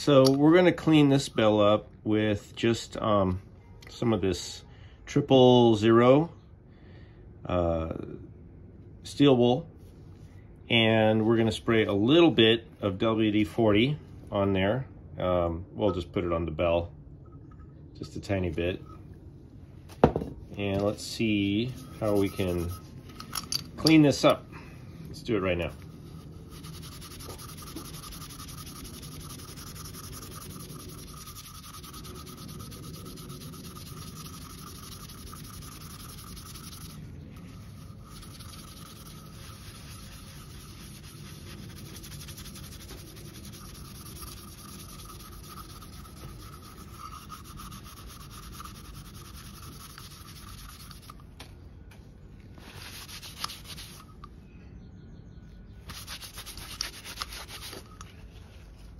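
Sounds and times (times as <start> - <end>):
steel wool scrubbing metal: 20.9 - 24.3, 25.5 - 51.2, 52.6 - 54.3, 55.9 - 58.0.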